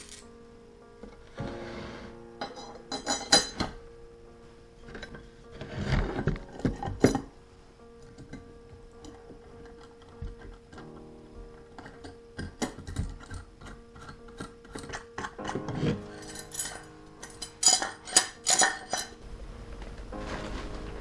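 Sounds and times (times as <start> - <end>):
background hiss: 0.0 - 21.0
metal strap clinking and scraping: 15.2 - 19.2.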